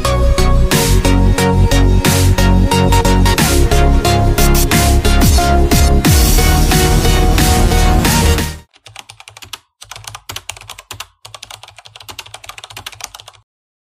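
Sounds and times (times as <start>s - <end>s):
electronic background music: 0.0s - 8.7s
computer keyboard typing: 8.7s - 13.5s.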